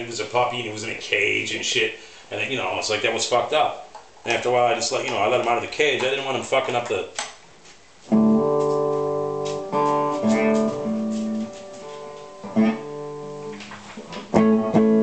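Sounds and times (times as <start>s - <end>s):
electric guitar notes and chords: 8.1s - 15.0s.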